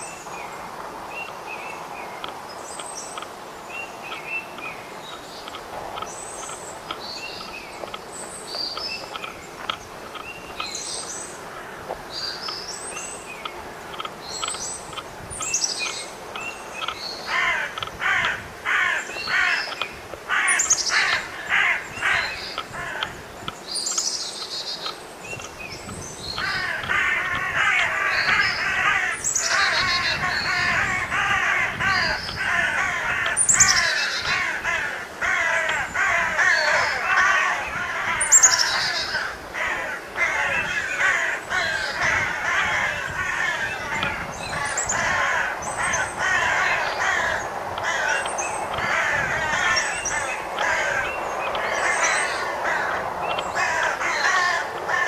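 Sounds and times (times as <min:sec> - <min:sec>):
dense chatter of many birds: 0:00.0 - 0:55.0
small birds chirping: 0:00.0 - 0:55.0
crow cawing: 0:17.3 - 0:23.2, 0:26.4 - 0:55.0.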